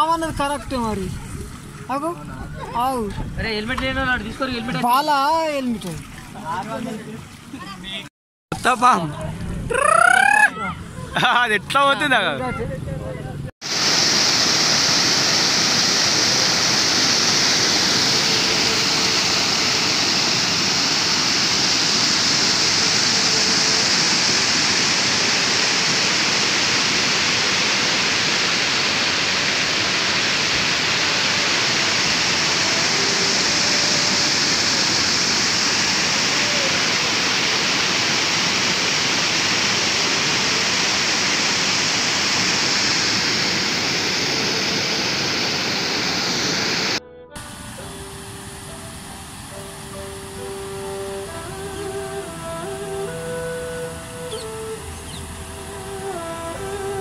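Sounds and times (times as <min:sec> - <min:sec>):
water rushing over weir: 0:13.6 - 0:57.0.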